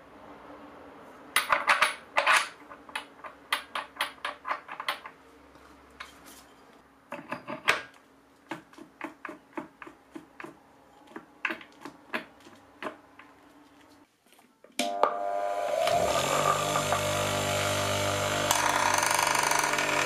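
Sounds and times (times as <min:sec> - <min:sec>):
grinding wheel knocking on spindle: 0:15.8 - 0:20.0.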